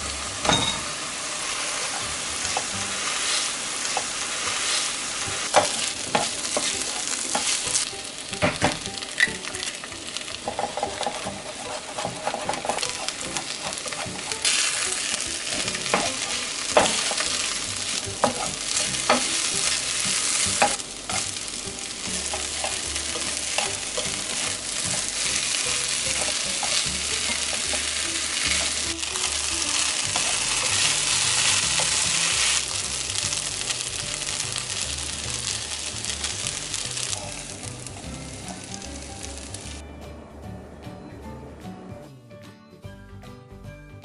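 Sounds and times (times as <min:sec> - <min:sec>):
fried rice sizzling in a frying pan: 0:00.0 - 0:39.8
wooden spatula stirring: 0:09.0 - 0:32.9.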